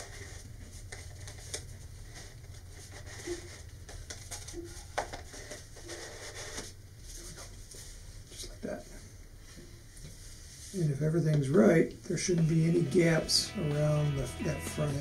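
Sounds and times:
paper tube rubbing in hands: 0.0 - 8.4.

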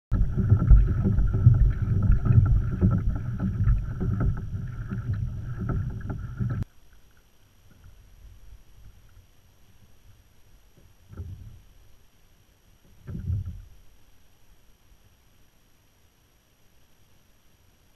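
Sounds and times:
water along kayak hull: 0.0 - 17.9
wind on microphone: 0.1 - 6.6
small knocks: 0.1 - 8.0, 10.7 - 11.7, 12.8 - 13.8.

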